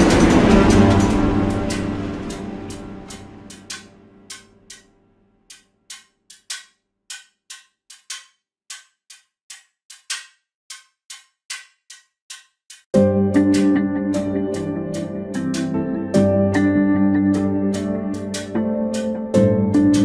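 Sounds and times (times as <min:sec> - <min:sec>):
loud guitar music: 0:00.0 - 0:04.0, 0:13.0 - 0:20.0
clock ticking: 0:00.0 - 0:04.9, 0:05.5 - 0:15.8, 0:17.3 - 0:20.0
music bed: 0:00.0 - 0:04.9, 0:11.9 - 0:20.0.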